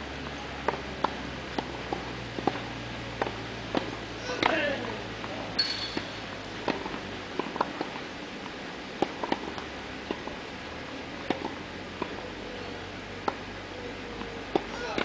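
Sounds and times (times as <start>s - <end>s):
outdoor background hiss: 0.0s - 15.0s
tennis balls struck by rackets: 0.2s - 10.4s, 11.1s - 15.0s.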